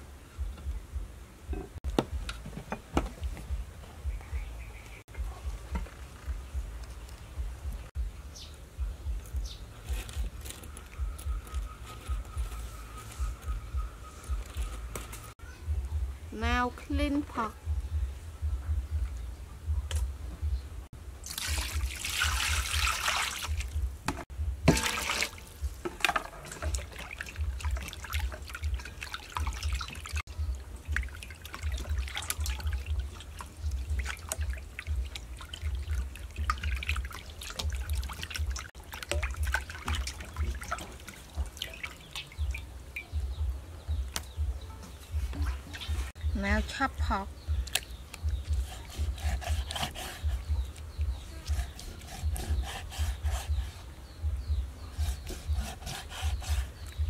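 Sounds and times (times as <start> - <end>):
water pouring: 21.2 - 23.8, 24.7 - 43.1
water splashing in a metal bowl: 21.2 - 43.3.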